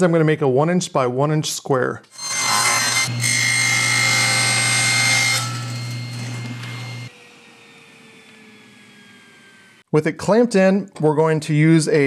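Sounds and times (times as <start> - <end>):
table saw cutting plastic: 2.1 - 9.9.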